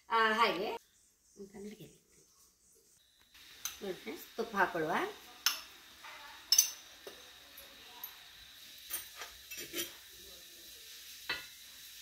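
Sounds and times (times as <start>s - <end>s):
steel tumbler clinking: 6.4s - 10.0s
spoon clinking against bowl: 6.5s - 7.7s.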